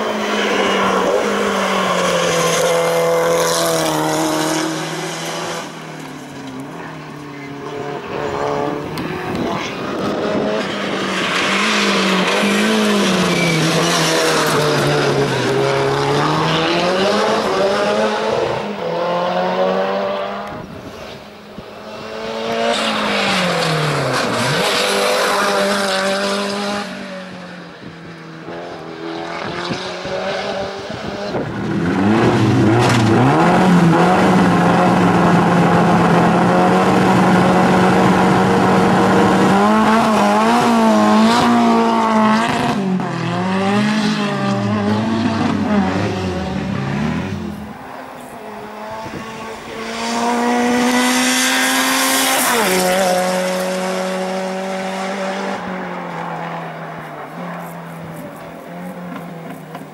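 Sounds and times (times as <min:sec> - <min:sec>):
race car engine revving: 0:00.0 - 0:27.4, 0:28.4 - 0:59.9.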